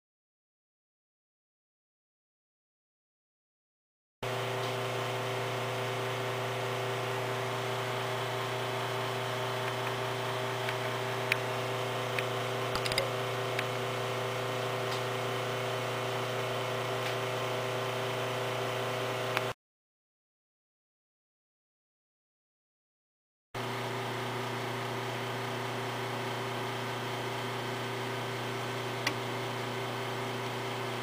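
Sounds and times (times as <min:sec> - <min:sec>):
machine hum with held tones: 0:04.2 - 0:19.6, 0:23.6 - 0:31.0.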